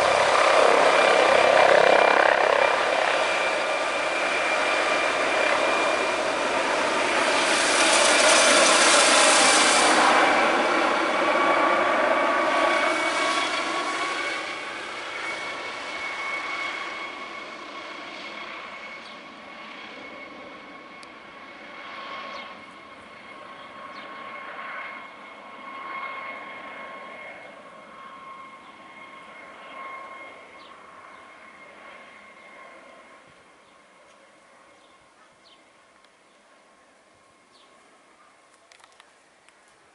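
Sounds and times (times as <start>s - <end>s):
high turbine whine: 0.0s - 21.4s
helicopter flying past: 0.0s - 39.9s.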